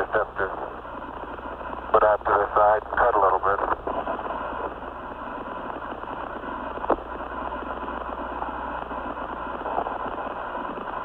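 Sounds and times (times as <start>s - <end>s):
radio hiss: 0.0s - 11.0s.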